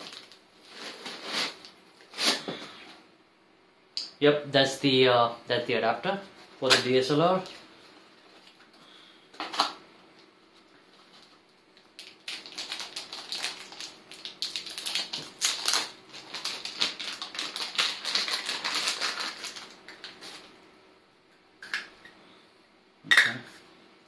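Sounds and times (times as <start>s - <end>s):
plastic bag crinkling: 0.0s - 1.8s, 11.1s - 20.6s.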